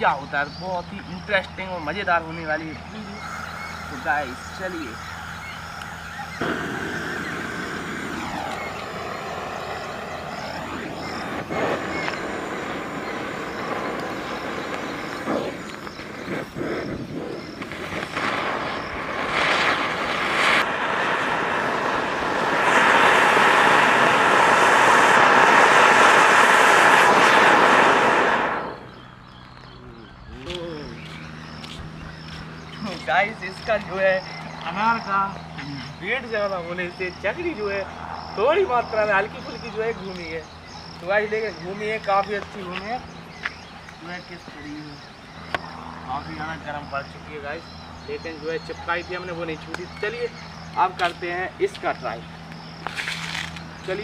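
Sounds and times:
firework hissing spray of sparks: 3.1 - 29.1, 52.8 - 54.0.

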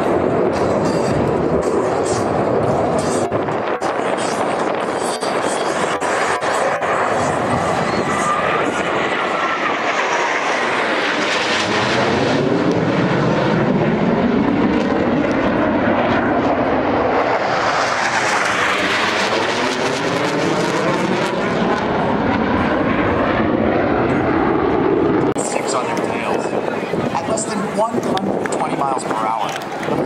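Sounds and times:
jet fighters flying past: 0.0 - 30.0.

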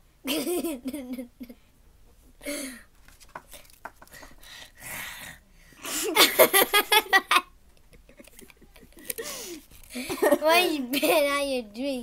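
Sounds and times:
girl laughing: 5.9 - 11.3.

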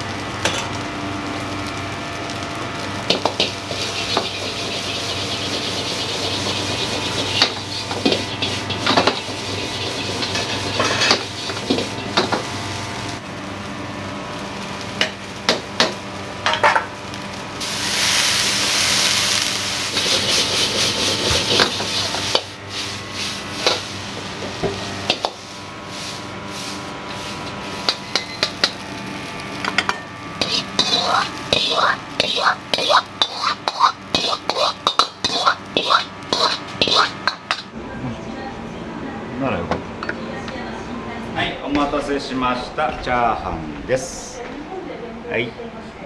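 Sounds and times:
loud sizzling: 0.0 - 38.5
metal ladle scraping a wok: 3.4 - 12.1, 19.9 - 23.9, 30.4 - 37.6.

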